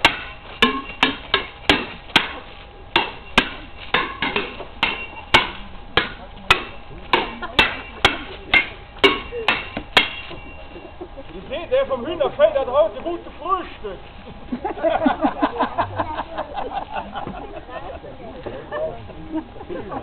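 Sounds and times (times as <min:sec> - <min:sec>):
sword blades clashing: 0:00.0 - 0:10.5.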